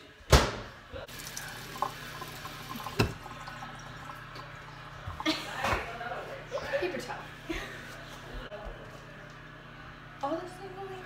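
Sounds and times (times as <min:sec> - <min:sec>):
tap running into sink: 0:01.2 - 0:03.5.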